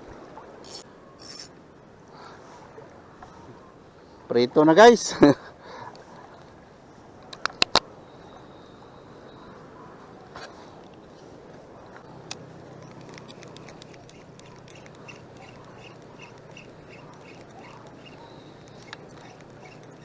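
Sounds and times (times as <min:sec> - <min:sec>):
shallow water washing: 0:10.2 - 0:20.0
faint ticks: 0:12.0 - 0:20.0
sharp clicks: 0:12.3 - 0:20.0.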